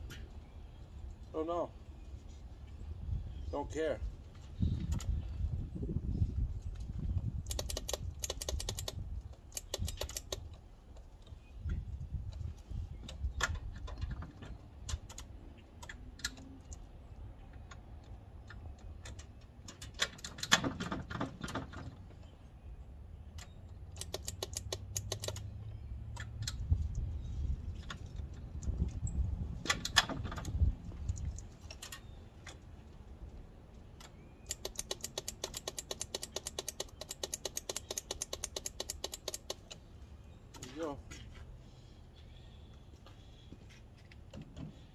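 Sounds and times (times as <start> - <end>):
starter solenoid clicking rapidly: 7.4 - 10.5, 24.0 - 25.4, 34.5 - 39.7.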